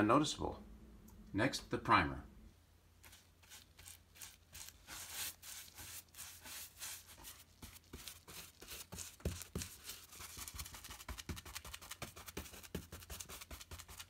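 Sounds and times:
paintbrush scrubbing textured ceiling: 0:03.0 - 0:14.0.

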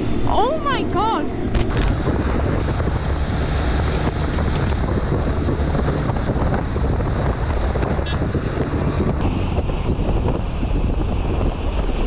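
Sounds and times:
vehicle noise: 0:00.0 - 0:12.0
wind buffeting microphone: 0:00.0 - 0:12.0.

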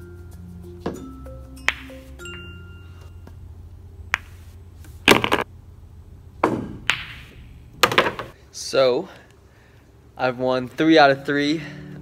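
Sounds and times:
soft background music: 0:00.0 - 0:04.5
pool balls clacking: 0:00.9 - 0:02.2, 0:05.1 - 0:05.5, 0:06.4 - 0:08.4.

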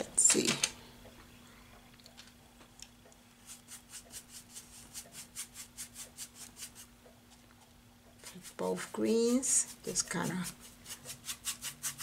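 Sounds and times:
paintbrush scrubbing on canvas: 0:03.4 - 0:06.9, 0:08.2 - 0:12.0.

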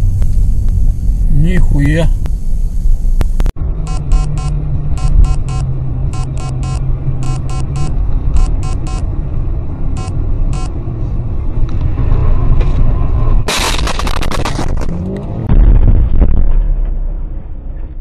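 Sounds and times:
car engine and road noise: 0:00.0 - 0:18.0
heavy low rumble: 0:00.0 - 0:18.0
car crash: 0:11.9 - 0:18.0.

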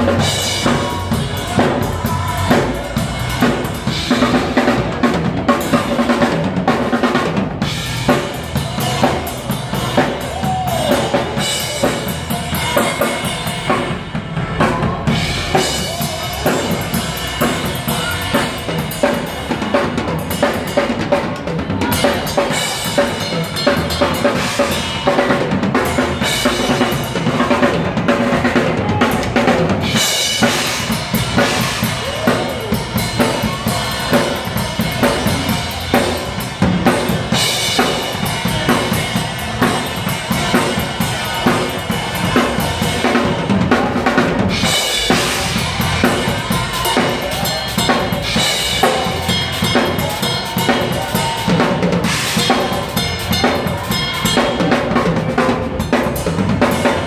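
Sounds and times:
drum kit groove: 0:00.0 - 0:57.0
cymbals ringing: 0:21.8 - 0:28.5, 0:29.6 - 0:57.0.

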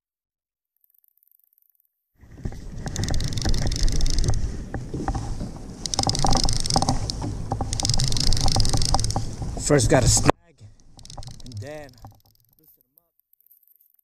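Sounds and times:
wind on microphone: 0:02.2 - 0:12.1
water sloshing: 0:02.2 - 0:12.3
fishing reel cranking: 0:02.4 - 0:14.0
reel clicks: 0:02.4 - 0:14.0.

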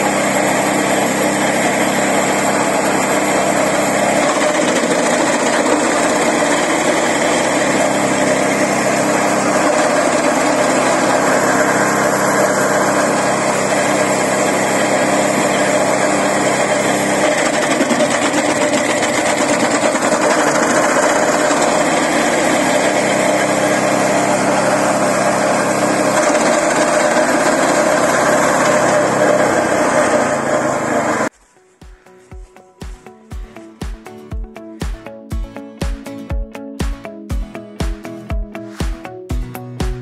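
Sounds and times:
branch chipper engine running: 0:00.0 - 0:31.3
branches being cut: 0:00.0 - 0:31.5.

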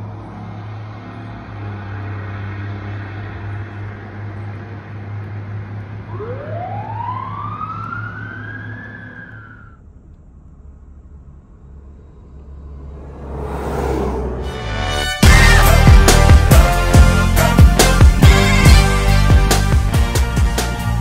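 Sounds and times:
vehicle rumble: 0:00.0 - 0:21.0
fire truck siren: 0:05.7 - 0:09.8.

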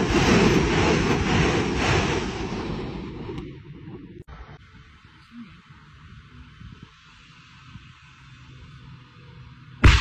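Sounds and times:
wind buffeting microphone: 0:00.0 - 0:05.1, 0:06.0 - 0:08.0.

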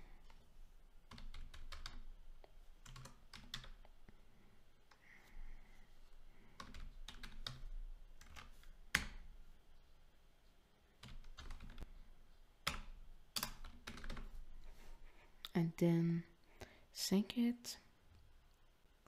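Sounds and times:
keyboard typing clicks: 0:11.0 - 0:14.3.

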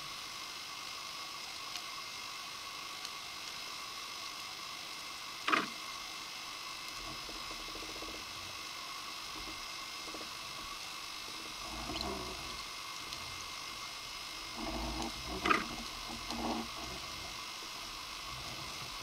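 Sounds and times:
faint constant whine: 0:00.0 - 0:19.0
underwater hiss: 0:00.0 - 0:19.0
soft low rumble: 0:09.3 - 0:19.0
rapid buzzing: 0:09.4 - 0:19.0.

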